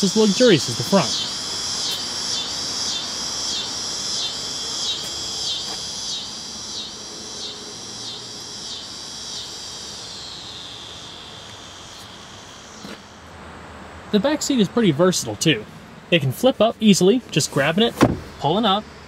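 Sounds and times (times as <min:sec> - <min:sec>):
insects singing high-pitched: 0:00.0 - 0:13.4.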